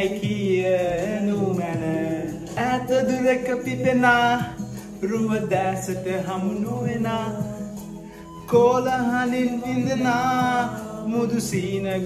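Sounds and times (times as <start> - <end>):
instrumental backing music: 0.0 - 12.0
man singing: 0.0 - 12.0.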